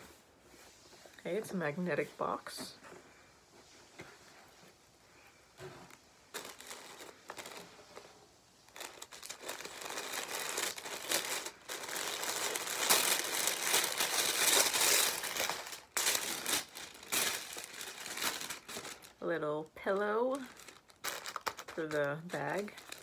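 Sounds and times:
paper wrapping rustling: 5.6 - 19.2, 20.0 - 23.0.

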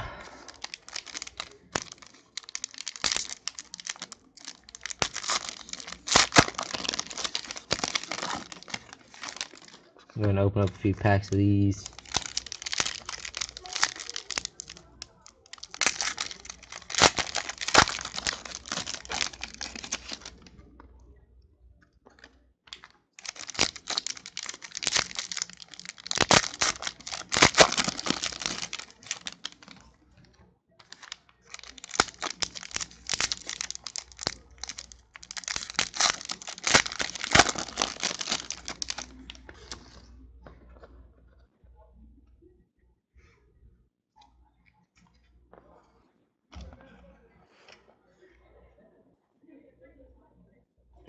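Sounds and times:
foil wrappers tearing and crinkling: 0.3 - 9.9, 10.8 - 20.4, 22.7 - 29.9, 30.8 - 40.0.

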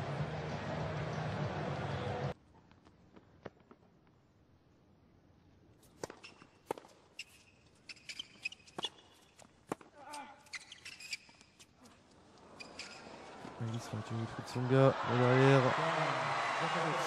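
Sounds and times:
shoes squeaking on court: 5.8 - 14.0
tennis ball bouncing: 5.9 - 7.0.

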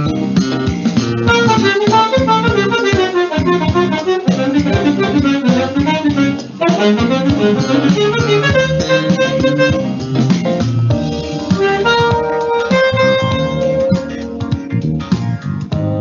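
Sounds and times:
bass and drums backing track: 0.0 - 16.0
alto saxophone melody: 1.2 - 10.2, 11.0 - 14.4.

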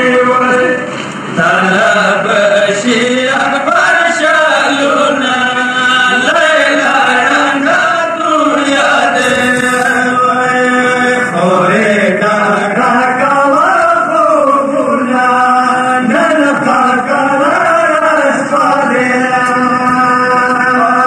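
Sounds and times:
man chanting: 0.0 - 21.0.

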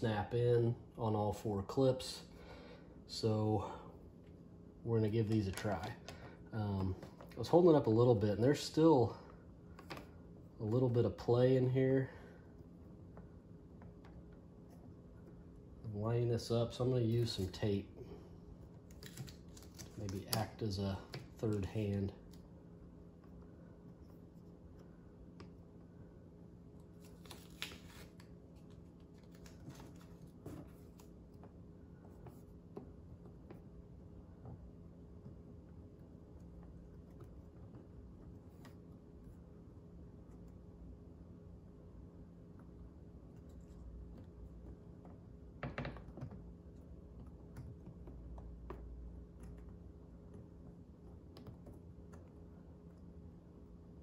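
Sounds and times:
low steady hum: 0.0 - 54.0
hands handling tape and plastic: 18.8 - 22.4.

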